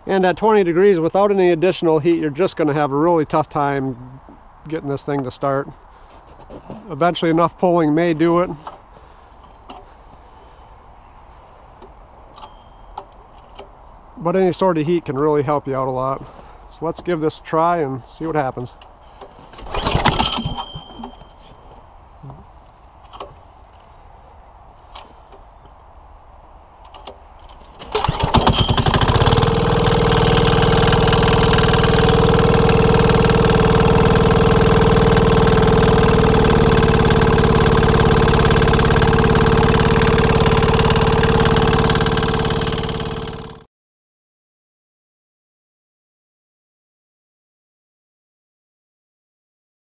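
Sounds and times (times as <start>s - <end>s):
diesel engine running: 27.9s - 43.6s.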